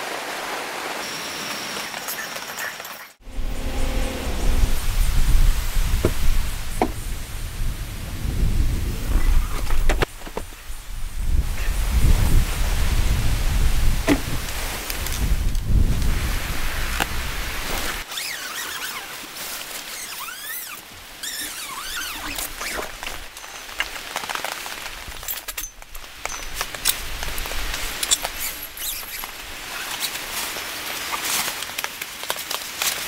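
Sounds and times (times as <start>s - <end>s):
short high squeaks: 18.0s - 19.2s, 19.9s - 22.8s, 28.1s - 30.1s.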